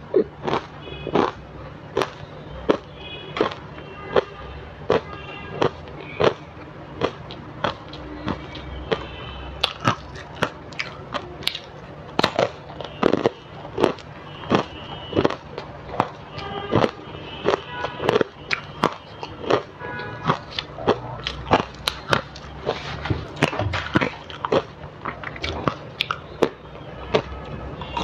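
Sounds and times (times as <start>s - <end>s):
crisp crunches of ice chewing: 7.0s - 15.4s, 16.0s - 26.5s.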